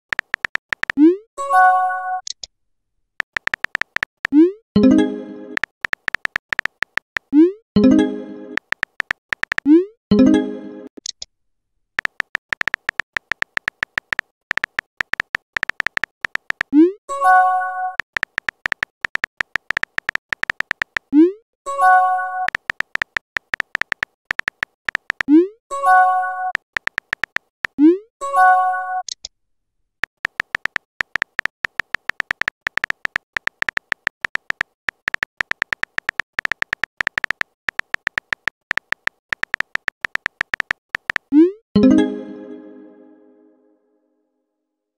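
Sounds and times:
synthetic keyboard tap clicks: 0:00.1 - 0:01.2, 0:03.2 - 0:04.5, 0:05.5 - 0:07.6, 0:08.5 - 0:09.8, 0:12.0 - 0:16.9, 0:17.9 - 0:21.3, 0:22.4 - 0:25.4, 0:26.6 - 0:27.8, 0:30.0 - 0:41.5
message chime: 0:41.8 - 0:43.7.

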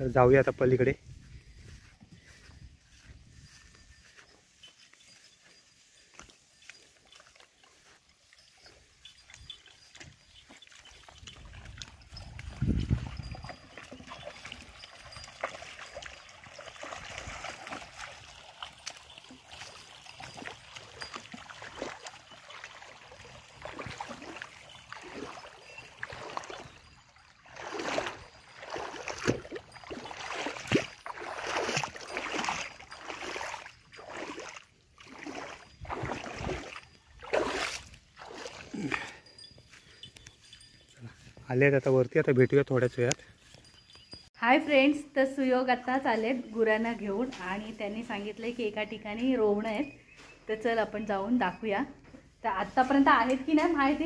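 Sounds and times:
footsteps swishing through grass: 0:00.4 - 0:08.0
shallow water trickling and splashing: 0:01.6 - 0:41.3.

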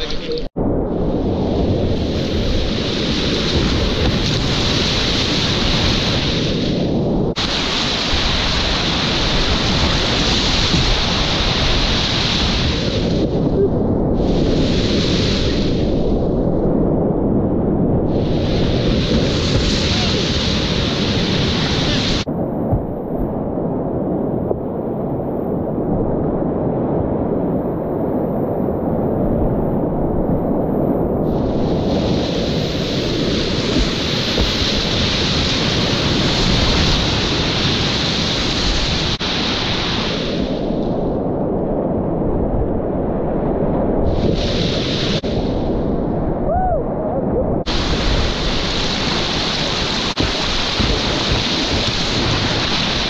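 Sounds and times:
rumble of rushing water: 0:00.0 - 0:53.0
hiss of splashing water: 0:07.4 - 0:13.2, 0:14.2 - 0:16.0, 0:31.3 - 0:40.8, 0:44.1 - 0:45.6, 0:47.7 - 0:53.0.

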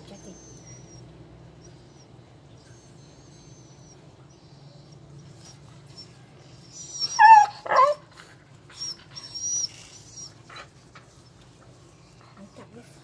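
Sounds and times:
dog whimpering: 0:00.0 - 0:08.1, 0:08.7 - 0:10.7
dog yelping: 0:06.7 - 0:08.1, 0:08.8 - 0:10.7.

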